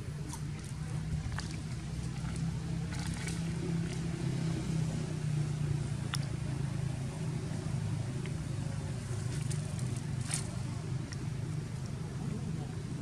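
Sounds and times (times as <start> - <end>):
motor vehicle engine humming: 0.0 - 13.0.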